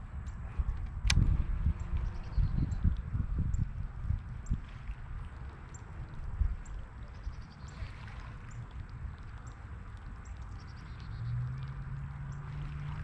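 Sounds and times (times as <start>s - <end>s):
low rumble on microphone: 0.0s - 13.0s
steady low hum: 0.0s - 13.0s
faint ticks: 8.5s - 12.6s.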